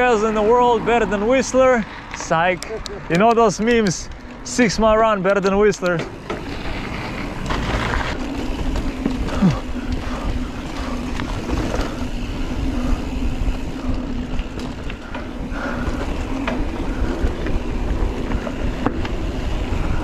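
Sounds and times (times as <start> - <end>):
bike clicks and rattles: 0.0 - 20.0
bike tyres rolling over dirt: 0.0 - 20.0
wind rumbling on microphone: 6.1 - 20.0.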